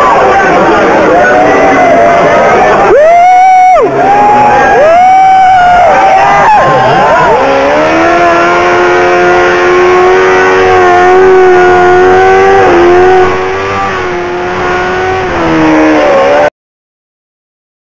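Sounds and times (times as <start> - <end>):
motorcycle engine at high revs: 3.8 - 16.5.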